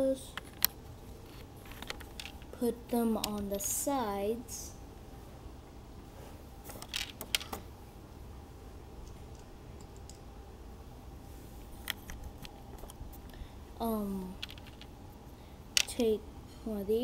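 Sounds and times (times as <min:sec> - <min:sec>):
plastic bricks clicking: 0:01.7 - 0:02.5, 0:06.8 - 0:07.6, 0:14.3 - 0:14.9.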